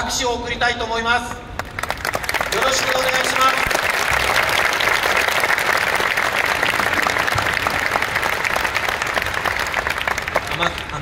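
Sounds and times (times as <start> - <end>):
crowd applauding: 1.6 - 11.0.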